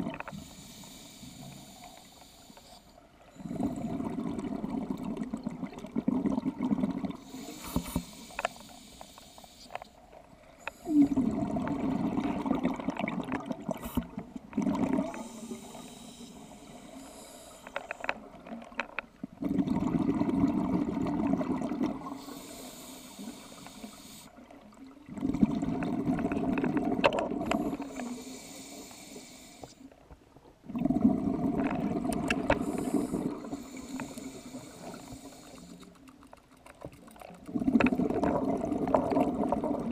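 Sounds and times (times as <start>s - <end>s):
regulator inhale hiss: 0.3s - 3.6s, 7.2s - 10.0s, 15.1s - 18.2s, 22.0s - 24.5s, 27.5s - 30.0s, 32.5s - 36.0s
exhaust bubbles: 3.4s - 7.2s, 10.9s - 15.3s, 19.3s - 22.2s, 25.1s - 27.8s, 30.7s - 33.7s, 37.4s - 39.9s.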